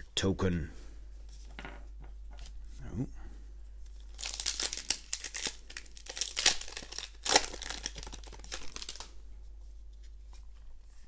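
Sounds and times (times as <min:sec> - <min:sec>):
foil wrapper crinkling and tearing: 0:04.0 - 0:09.2.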